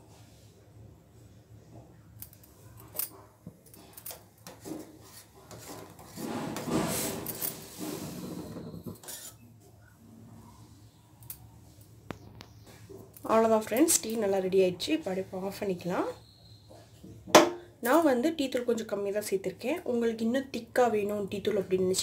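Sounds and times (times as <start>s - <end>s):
metal spoon scraping pan: 4.5s - 9.5s.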